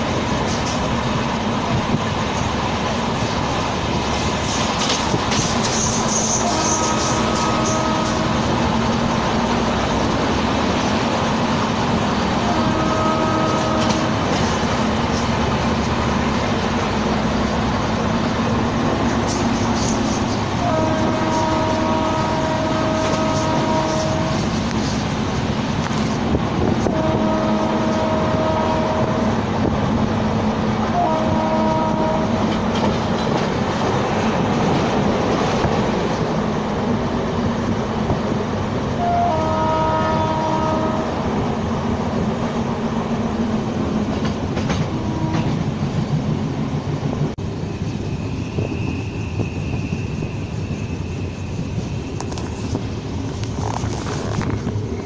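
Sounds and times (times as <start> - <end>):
train rumble and rail clatter: 0.0 - 55.0
multi-note locomotive horn: 6.2 - 8.6, 12.4 - 14.4, 20.5 - 24.8, 26.8 - 29.4, 30.8 - 32.7, 38.9 - 41.4, 44.7 - 45.6.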